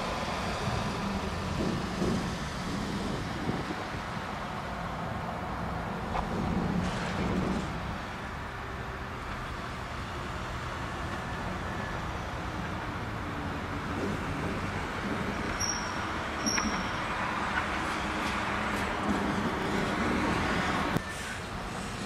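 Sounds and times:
diesel locomotive engine drone: 0.0s - 22.0s
wheel and rail noise: 0.0s - 22.0s
high-pitched squeaks: 15.5s - 17.1s.

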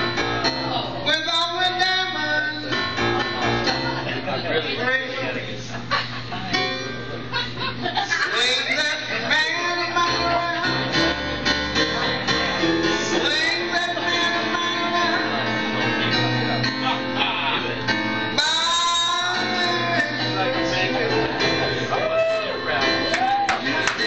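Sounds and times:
live band with guitar: 0.0s - 24.0s
person singing: 8.3s - 17.8s, 18.4s - 24.0s.

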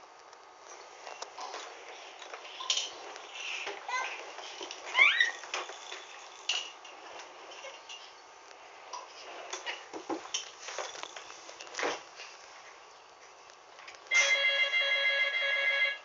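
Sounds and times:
baby squealing: 4.9s - 5.5s.

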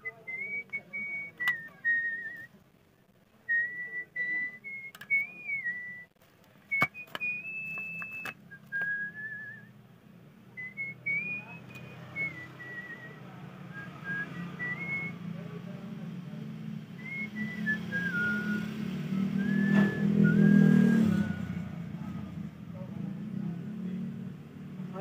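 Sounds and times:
person whistling a tune: 0.0s - 2.5s, 3.5s - 6.1s, 6.7s - 9.7s, 10.6s - 15.2s, 17.0s - 21.7s.

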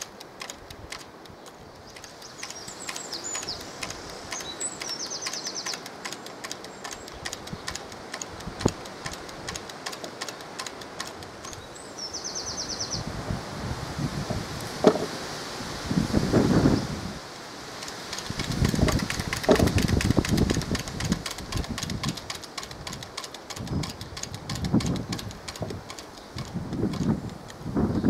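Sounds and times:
whirligig mechanism clicking: 0.0s - 11.7s, 17.8s - 27.7s
rustling leaves: 0.0s - 28.0s
wind: 0.0s - 28.0s
small bird chirping: 1.4s - 7.8s, 11.4s - 13.0s.

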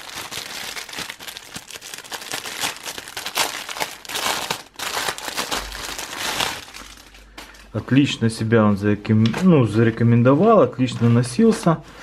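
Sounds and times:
plastic packaging crinkling: 0.0s - 7.9s.

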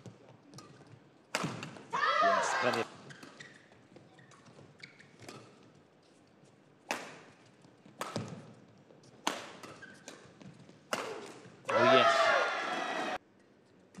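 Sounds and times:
badminton racket hitting shuttlecock: 0.6s - 3.4s, 6.9s - 7.3s, 8.0s - 8.5s, 9.2s - 11.9s.

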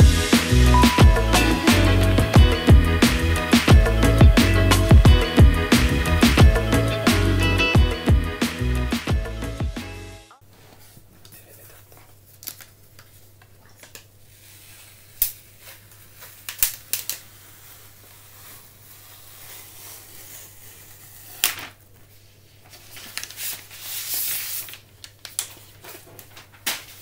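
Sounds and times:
paper rustling: 10.5s - 27.0s.

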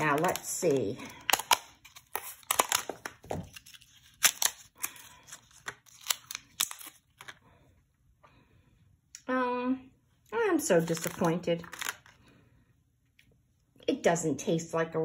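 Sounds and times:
plastic blister packaging crackling: 0.0s - 7.4s, 10.8s - 12.1s.

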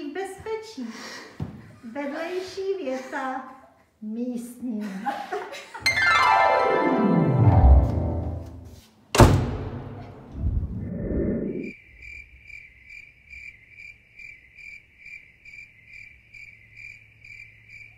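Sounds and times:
music: 5.9s - 8.8s
sharp hit: 9.2s - 11.7s
cricket chirping: 11.4s - 17.9s.

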